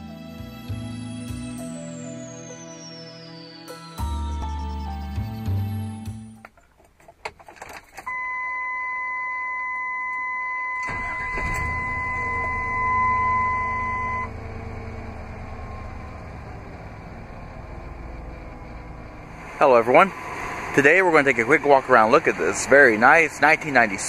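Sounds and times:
car engine starting and idling: 4.0s - 24.0s
keys clicking in ignition: 6.4s - 8.2s
dashboard warning tone: 8.0s - 16.8s.

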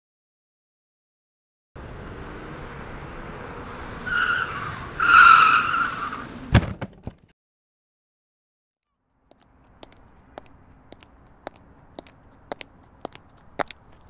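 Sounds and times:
tyres screeching: 4.0s - 6.4s
sharp thud and knocks: 6.5s - 7.3s.

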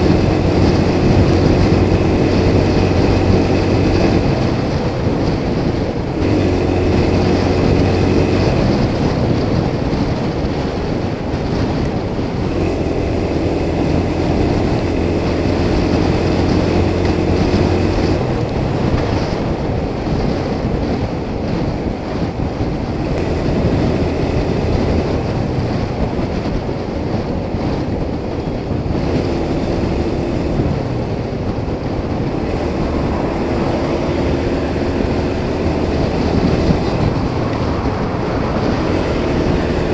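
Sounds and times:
motorcycle engine hum: 0.0s - 39.9s
wind and road noise: 0.0s - 39.9s.

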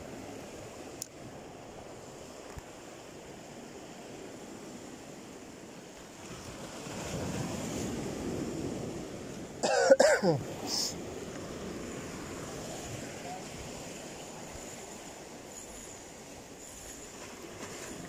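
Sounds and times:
sea waves breaking over boulders: 0.0s - 18.0s
man's cough-like vocal sound: 9.6s - 10.5s.

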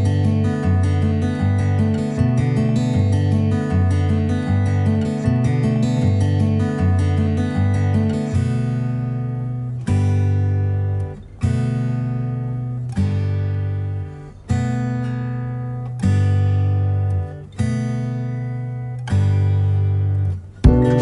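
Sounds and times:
acoustic guitar chords strummed: 0.0s - 21.0s.

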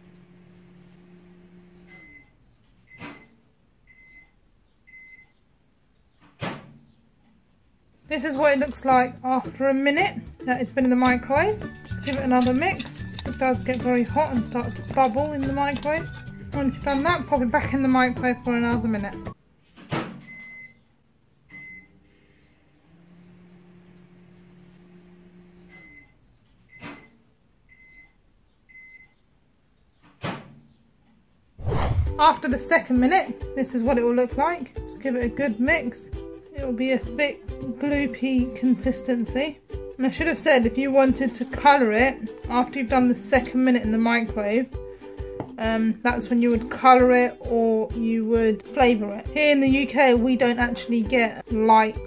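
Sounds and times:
microwave oven humming: 0.0s - 2.5s, 21.5s - 26.2s
microwave oven beeps: 1.3s - 5.4s, 20.2s - 20.9s, 21.5s - 22.0s, 22.9s - 29.2s.

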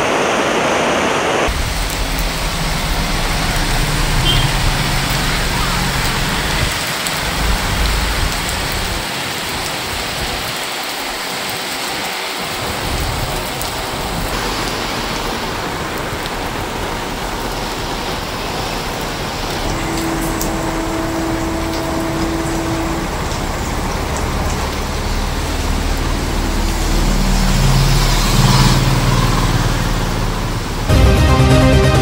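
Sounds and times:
heavy rain on pavement: 0.2s - 32.0s
steady pitched tone: 19.6s - 24.3s.

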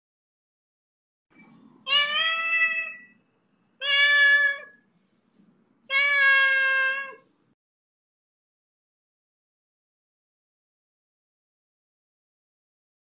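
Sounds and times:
cat meowing: 1.8s - 3.2s, 3.8s - 4.8s, 5.9s - 7.3s.

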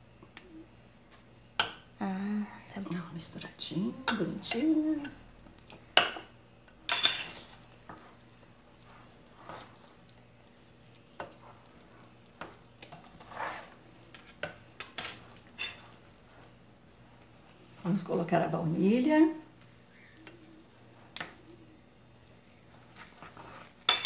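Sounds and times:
spoon clinking and scraping glass bowl: 13.0s - 16.0s.

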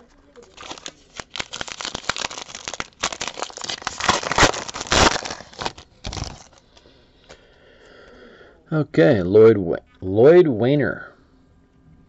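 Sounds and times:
wrapper crinkling and tearing: 0.4s - 6.6s.

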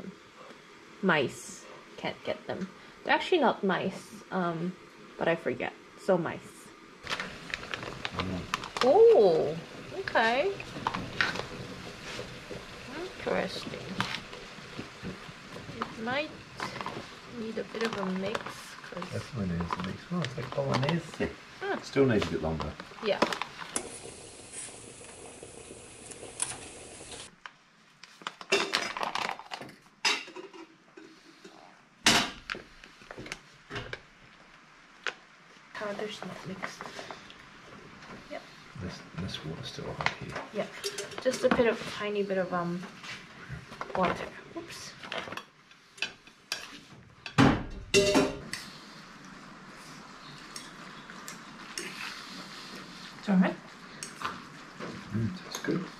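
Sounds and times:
steady hiss: 0.0s - 28.8s, 30.0s - 55.9s
metal pot and utensils clanking: 28.5s - 31.2s, 40.7s - 41.8s, 45.1s - 48.6s.

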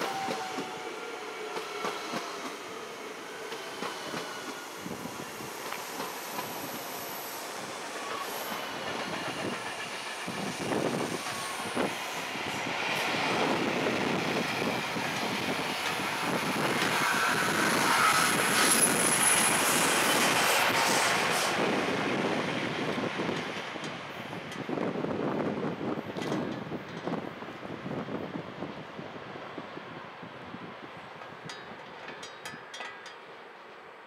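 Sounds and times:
train wheels clicking over rail joints: 3.4s - 21.8s, 26.1s - 27.3s, 31.1s - 34.0s
high wheel squeal: 16.4s - 21.5s.

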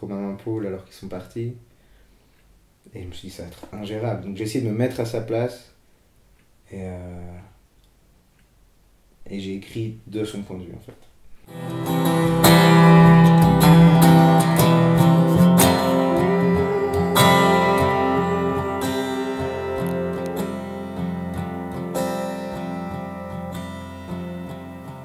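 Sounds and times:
guitar chords strummed: 11.5s - 25.0s.

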